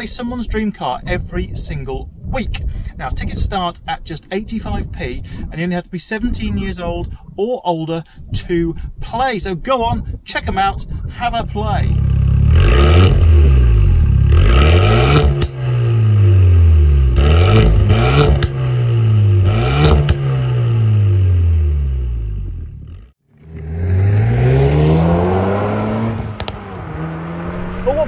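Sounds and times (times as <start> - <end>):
exhaust cracks: 9.8 - 28.0
car accelerating: 11.9 - 28.0
car engine revving: 11.9 - 28.0.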